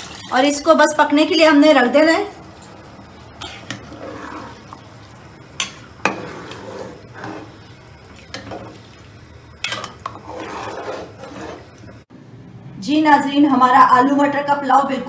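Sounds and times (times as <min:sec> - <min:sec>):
spoon stirring food in pot: 0:02.4 - 0:12.0.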